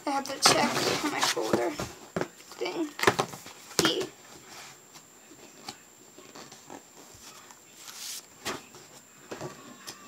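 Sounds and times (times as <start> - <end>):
paper rustle: 5.6 - 8.8.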